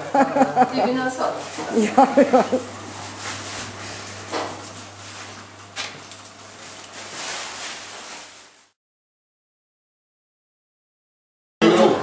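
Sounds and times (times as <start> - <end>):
low hum with hiss: 0.0 - 8.7.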